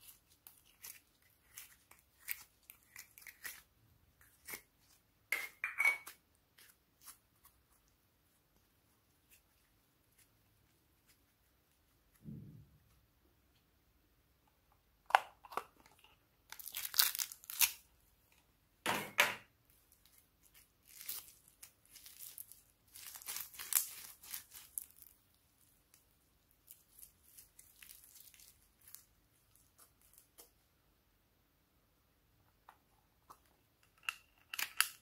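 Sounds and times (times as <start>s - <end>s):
slime crackling and tearing: 16.5s - 17.9s, 19.9s - 30.3s.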